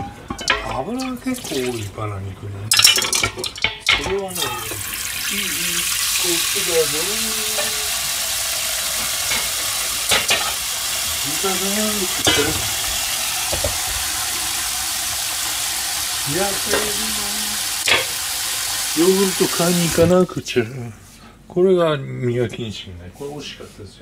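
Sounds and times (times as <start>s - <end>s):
tap water running into a saucepan: 0.4s - 1.9s, 3.1s - 20.2s.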